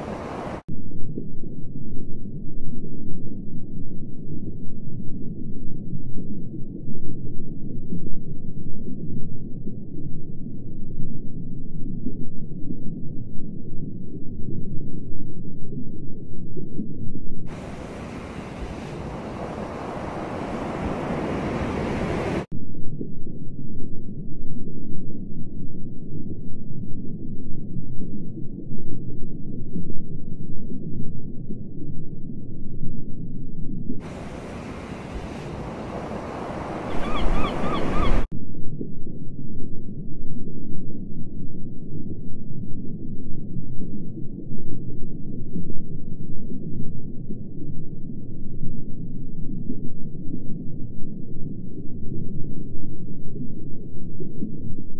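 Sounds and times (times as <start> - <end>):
ocean surf hiss: 0.0 - 0.6, 17.5 - 22.5, 34.1 - 38.2
muffled underwater rumble: 0.0 - 54.9
low underwater rumbling: 35.5 - 54.9.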